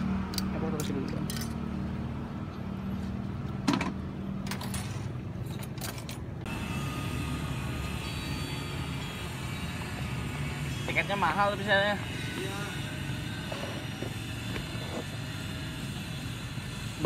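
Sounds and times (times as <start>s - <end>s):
road traffic rumble: 0.0s - 17.0s
hissy street ambience: 12.0s - 17.0s.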